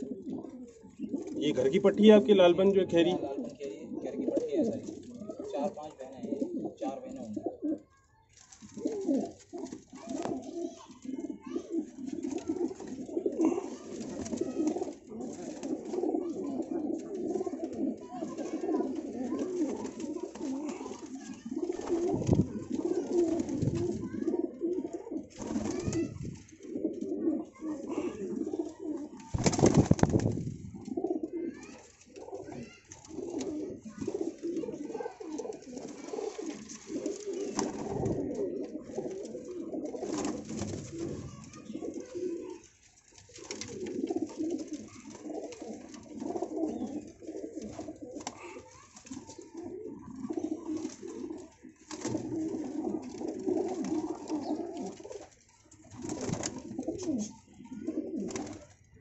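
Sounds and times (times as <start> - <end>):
pigeons cooing: 0.0 - 59.0
loud rustling burst: 29.3 - 30.7.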